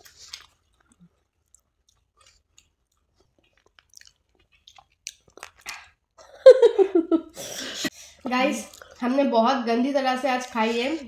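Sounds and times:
wet mouth clicks chewing: 0:00.0 - 0:06.0.

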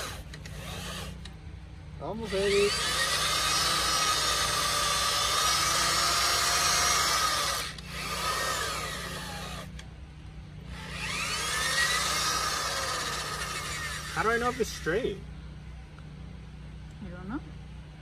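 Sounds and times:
electric drill boring into wood: 0:00.0 - 0:01.2, 0:02.2 - 0:09.7, 0:10.7 - 0:14.9.

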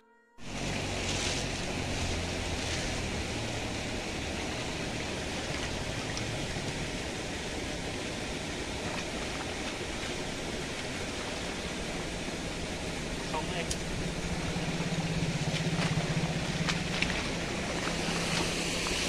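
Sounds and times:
stream water flowing: 0:00.4 - 0:19.0.

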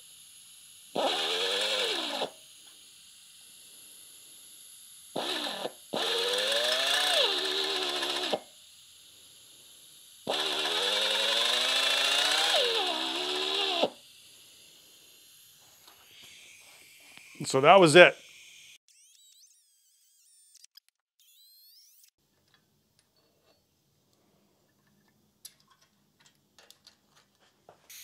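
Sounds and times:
drill whining into metal: 0:00.9 - 0:02.9, 0:05.1 - 0:08.6, 0:09.8 - 0:17.6.

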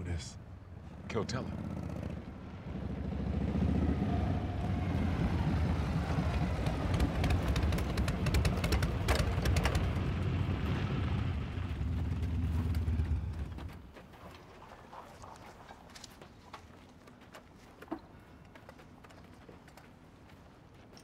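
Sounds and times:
motorcycles rumbling: 0:00.0 - 0:13.8.

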